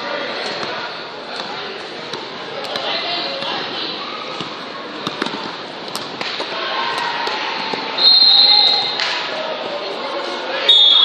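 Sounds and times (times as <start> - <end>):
referee's whistle: 8.0 - 9.0, 10.6 - 11.0.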